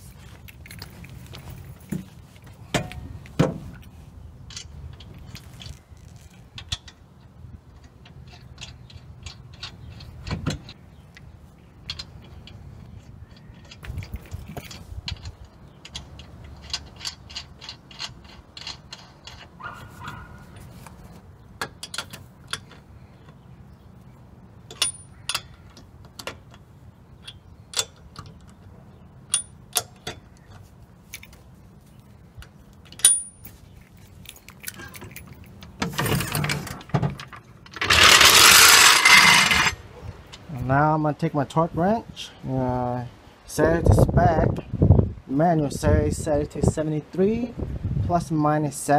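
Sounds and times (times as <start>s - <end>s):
metal clacks: 32.8s - 40.5s.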